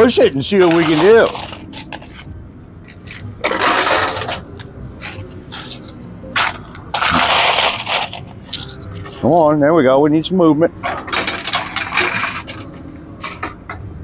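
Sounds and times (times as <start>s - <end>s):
coins clinking: 0.5s - 2.3s, 2.9s - 9.4s, 10.9s - 13.8s
coins rattling: 0.5s - 2.3s, 2.9s - 9.4s, 10.9s - 13.7s.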